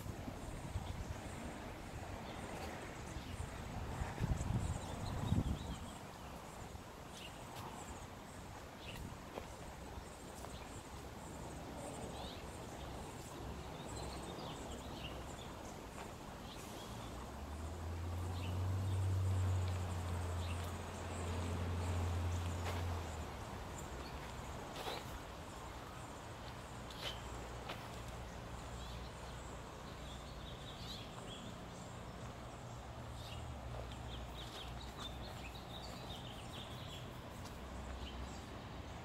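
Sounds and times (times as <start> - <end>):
outdoor background noise: 0.0 - 39.0
small birds chirping: 2.2 - 39.0.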